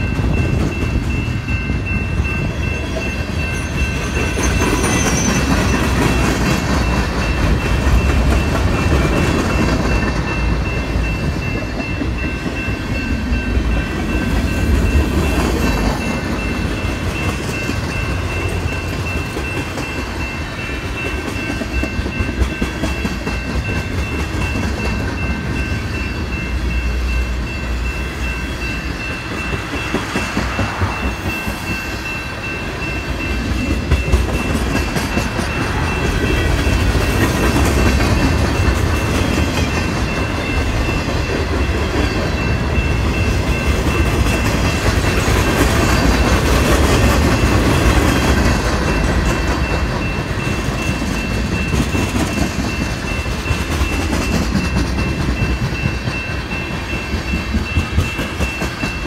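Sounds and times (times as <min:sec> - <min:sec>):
crossing bell ringing: 0:00.0 - 0:59.0
train wheels rumbling and clacking: 0:00.0 - 0:59.0.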